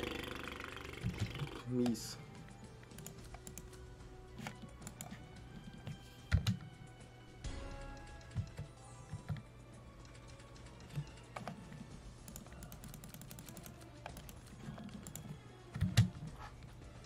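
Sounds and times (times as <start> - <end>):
mouse and keyboard clicks: 2.9 - 3.8, 4.4 - 5.2, 12.2 - 16.2.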